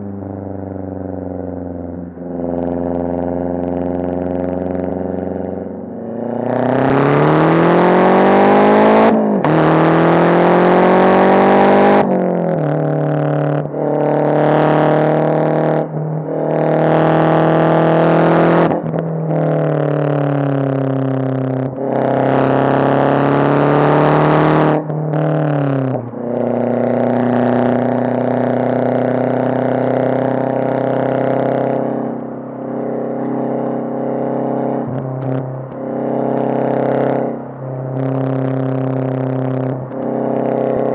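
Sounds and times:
car engine accelerating through gears: 0:00.0 - 0:40.9.

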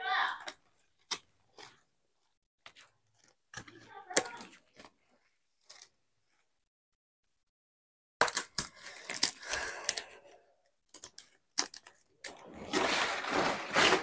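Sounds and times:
dry leaves crackling and rustling: 0:12.6 - 0:14.0.

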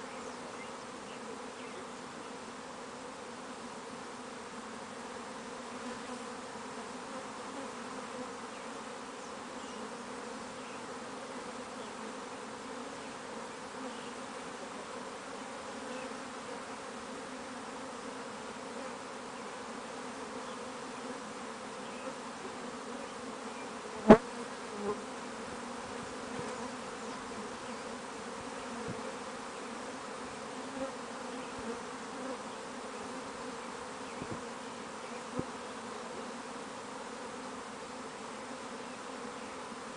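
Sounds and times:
bees buzzing: 0:00.0 - 0:39.9.

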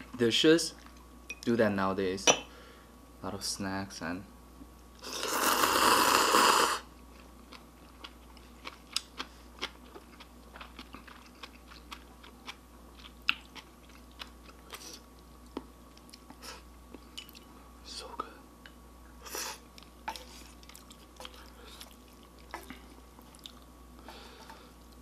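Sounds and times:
person slurping noodles: 0:05.0 - 0:06.9
wet chewing: 0:07.2 - 0:17.5, 0:19.7 - 0:23.7.

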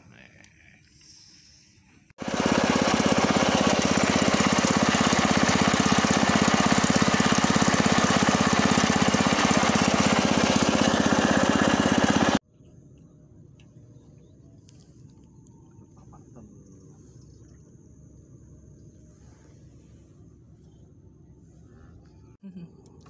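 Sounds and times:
small boat engine running: 0:02.2 - 0:12.4, 0:15.6 - 0:22.7.

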